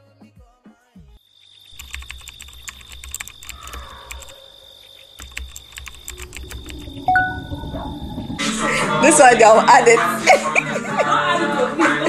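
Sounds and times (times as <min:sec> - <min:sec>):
rapid irregular clicking: 0:01.7 - 0:04.4, 0:05.2 - 0:08.6
low hum: 0:05.2 - 0:10.6
high-pitched tone: 0:06.0 - 0:10.3.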